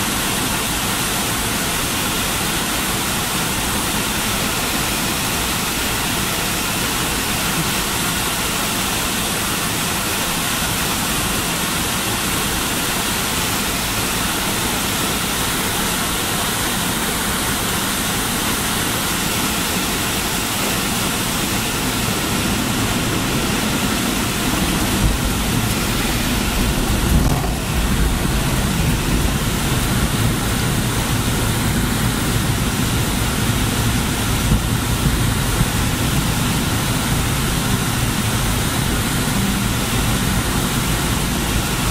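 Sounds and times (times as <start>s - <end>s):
airliner cabin engine and airflow: 0.0s - 41.9s
landing gear rumbling on runway: 20.9s - 33.0s.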